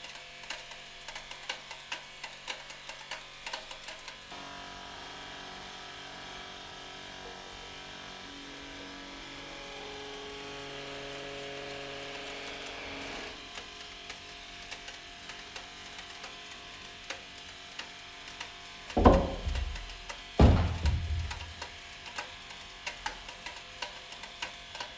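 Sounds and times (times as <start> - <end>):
small clicks: 0.0 - 4.3, 13.4 - 24.9
loud knock: 19.0 - 21.6
loud thud: 19.0 - 21.6.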